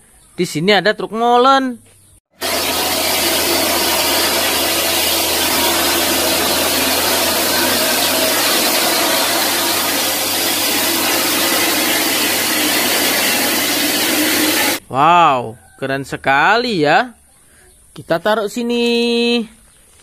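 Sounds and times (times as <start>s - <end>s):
concrete mixer trucks running: 2.4s - 14.8s.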